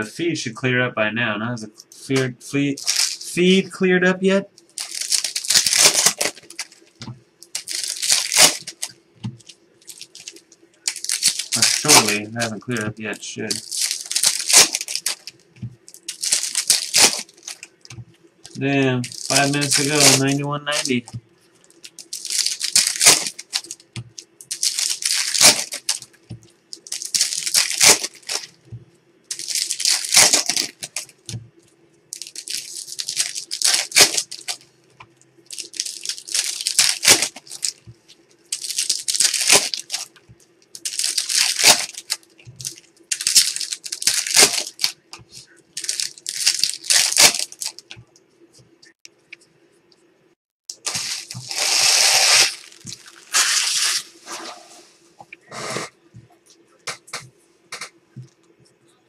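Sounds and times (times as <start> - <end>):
faint steady hum: 0.0 - 59.0
foil wrappers crinkling and tearing: 2.8 - 3.6, 4.6 - 28.6, 29.3 - 34.6, 35.4 - 48.0, 50.7 - 54.2.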